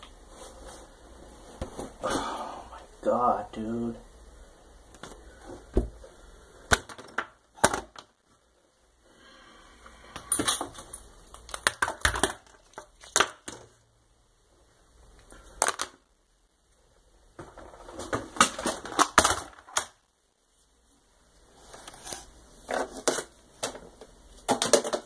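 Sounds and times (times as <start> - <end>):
objects clattering on a desk: 22.7 - 25.0.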